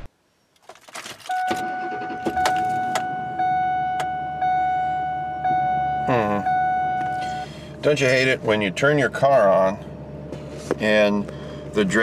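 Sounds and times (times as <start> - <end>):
keys rattling in ignition: 0.5 - 3.2
truck engine starting and idling: 1.0 - 9.8
dashboard warning chime: 1.3 - 7.6.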